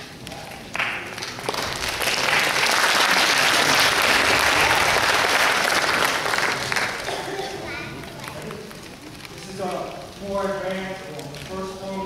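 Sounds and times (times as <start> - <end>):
audience applauding: 0.5 - 8.8.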